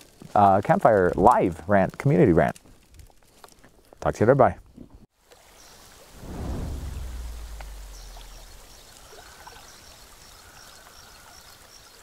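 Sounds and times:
deep boom: 6.2s - 8.9s.

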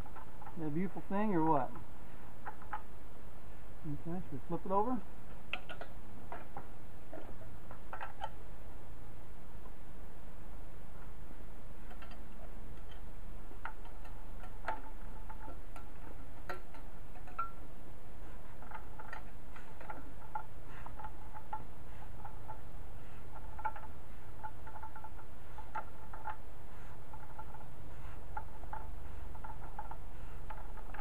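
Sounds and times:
low steady hum: 0.0s - 31.0s
metallic clicks and ticks: 5.5s - 8.4s, 11.8s - 31.0s.

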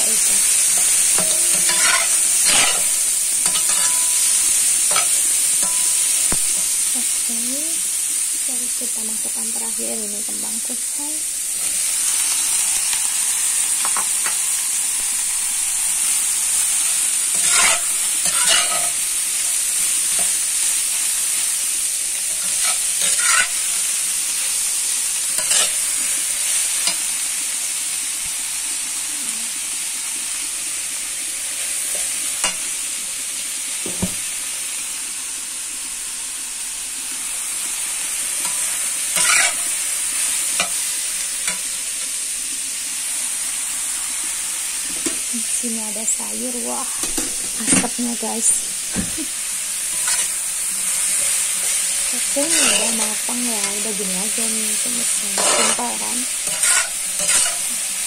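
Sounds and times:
vegetables sizzling in a wok: 0.0s - 58.0s
metal spatula scraping a pan: 0.7s - 6.8s, 17.2s - 19.1s, 22.3s - 24.0s, 25.4s - 27.1s, 38.4s - 39.8s, 49.8s - 57.8s.

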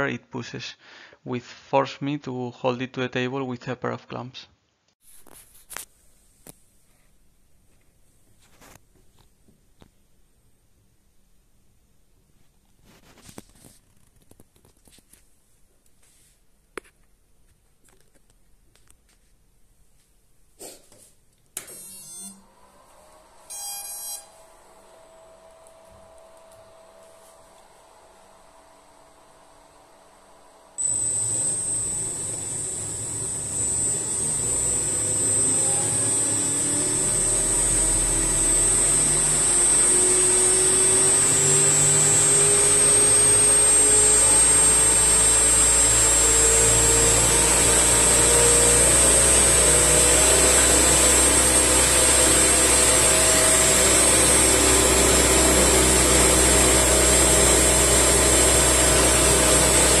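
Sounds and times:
electric motor whine: 21.7s - 60.0s
propeller air rushing: 30.8s - 39.8s, 47.9s - 60.0s.

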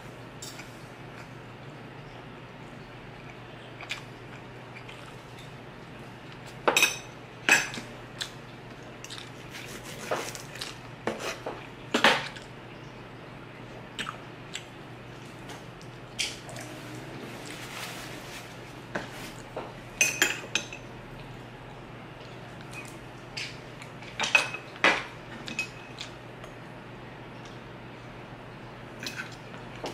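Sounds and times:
steady low hum: 0.0s - 29.9s
chewing: 3.2s - 5.6s, 8.2s - 9.6s, 14.0s - 17.7s.

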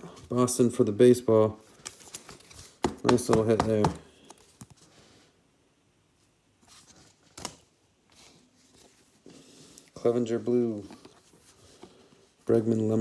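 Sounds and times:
cards rustling in plastic sleeves: 0.0s - 5.1s.

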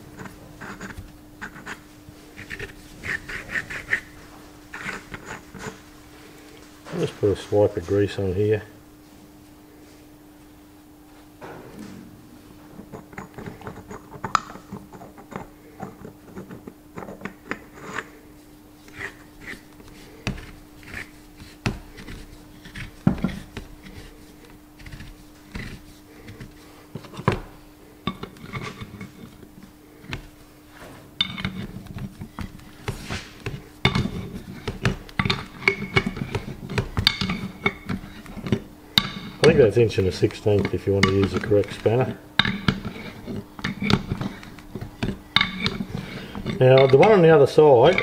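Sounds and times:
faint steady hum: 0.0s - 48.0s.

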